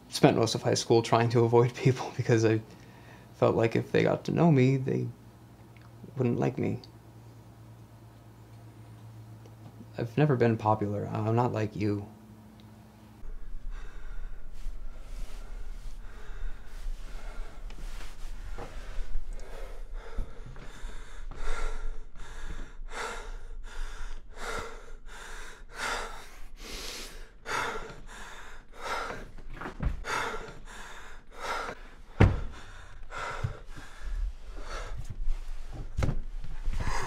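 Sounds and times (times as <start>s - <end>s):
man breathing hard: 13.2s - 36.0s, 36.7s - 37.0s
dull low thumps: 28.7s - 37.0s.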